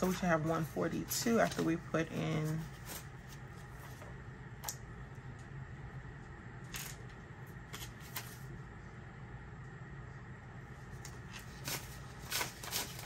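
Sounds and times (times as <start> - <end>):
paper rustling: 0.0 - 4.1, 7.7 - 8.5, 11.0 - 13.0
faint low room hum: 0.0 - 13.0.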